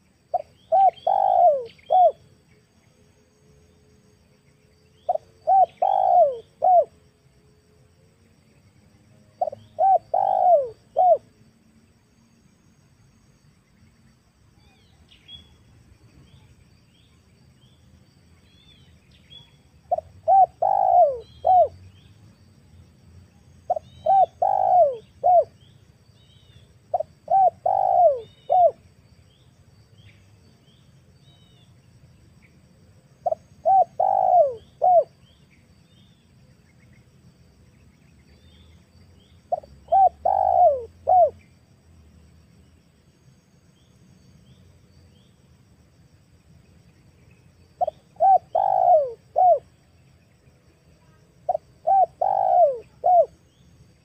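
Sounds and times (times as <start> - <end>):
small birds chirping: 0.0 - 3.1, 4.3 - 6.9, 9.4 - 11.2, 13.5 - 32.6, 33.2 - 41.6, 46.4 - 54.0
dove cooing: 0.3 - 2.2, 5.1 - 7.0, 9.4 - 11.3, 19.9 - 21.8, 23.7 - 25.6, 26.9 - 28.8, 33.2 - 35.2, 39.5 - 41.4, 47.8 - 49.7, 51.5 - 53.4.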